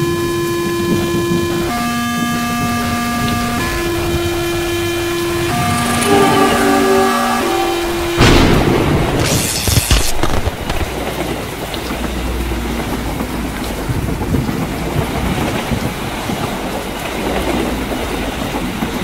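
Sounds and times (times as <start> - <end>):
heavy rain: 0.0 - 19.0
low thunder rumble: 0.8 - 9.2
thunder crack: 0.8 - 19.0.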